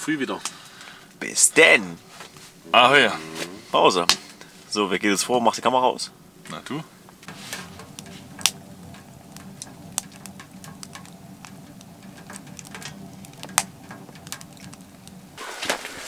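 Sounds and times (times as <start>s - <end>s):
steady low hum: 0.0s - 15.4s
wood fire crackling: 0.0s - 16.0s
fire pops and snaps: 6.3s - 16.0s.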